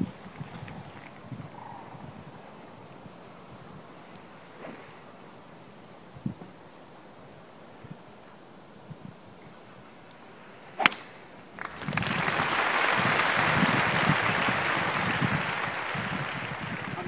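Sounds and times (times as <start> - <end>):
golf club striking ball: 10.8 - 11.2.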